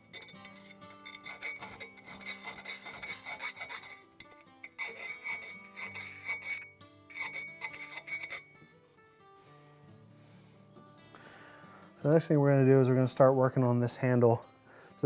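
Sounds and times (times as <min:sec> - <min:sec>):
file rasping on steel: 0:00.0 - 0:08.6.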